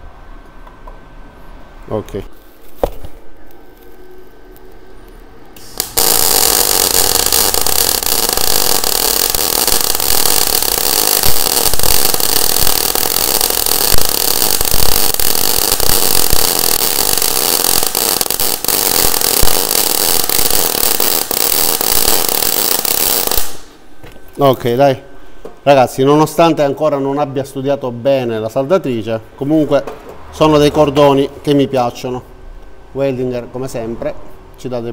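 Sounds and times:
welding arc crackling hiss: 3.4 - 23.8.

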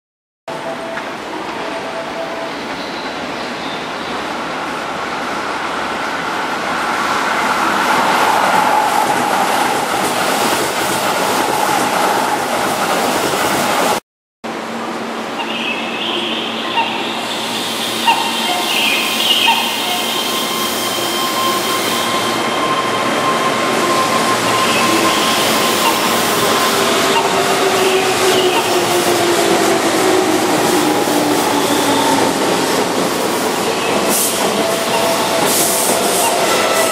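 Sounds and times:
train high whine: 0.5 - 36.9
train wheels rumbling on rail: 0.5 - 36.9.

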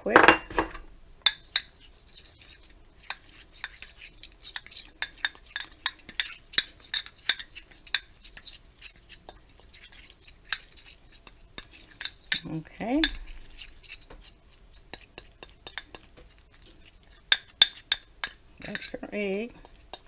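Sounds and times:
metal fork clinking in ceramic bowl: 1.3 - 1.8, 4.5 - 8.2, 9.3 - 13.4, 14.8 - 16.1, 17.2 - 19.0.

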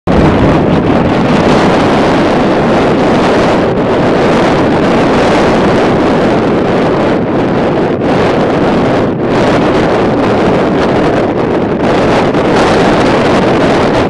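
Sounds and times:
wind on microphone: 0.1 - 14.0.

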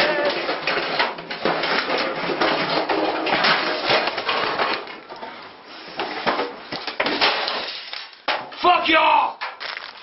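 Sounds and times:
metal clattering: 0.0 - 5.0.

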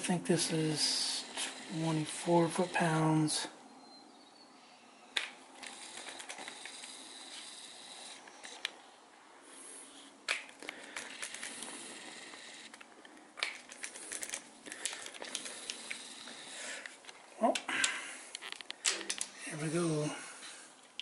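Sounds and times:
torque wrench clicks: 13.4 - 16.9.

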